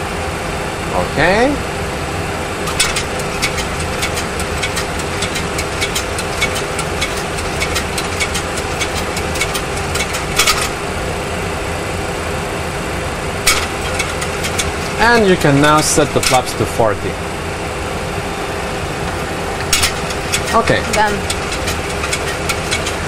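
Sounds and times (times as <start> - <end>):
jet engine and airflow noise: 0.0 - 23.0
sharp irregular clicks: 2.7 - 10.8, 19.6 - 23.0.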